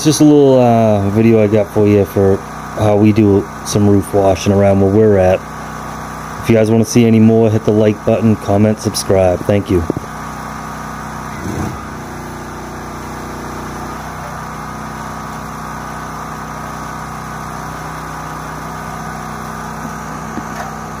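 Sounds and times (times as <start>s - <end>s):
small engine running: 0.0s - 21.0s.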